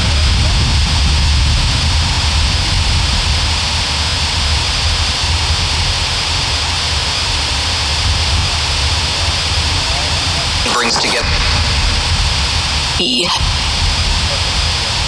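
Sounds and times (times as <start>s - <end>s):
static hiss: 0.0s - 15.0s
low rumble: 10.6s - 15.0s.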